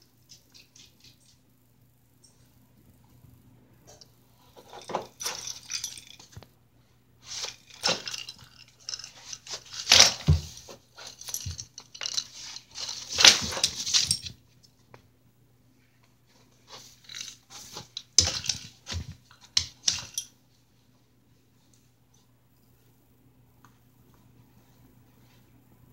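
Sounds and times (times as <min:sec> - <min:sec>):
faint low hum: 0:00.0 - 0:25.9
dog scuffling with toy on floor: 0:08.9 - 0:14.4.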